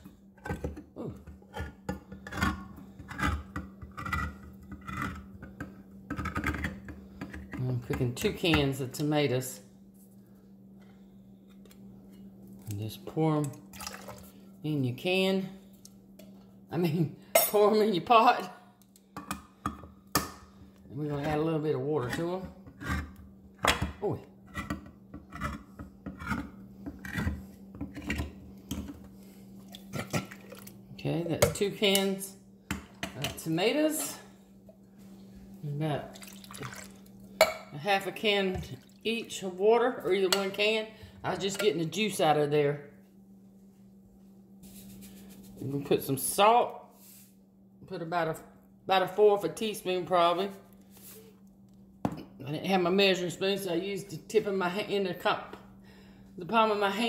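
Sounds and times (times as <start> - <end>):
can opener grinding: 1.4 - 7.6, 24.5 - 28.4.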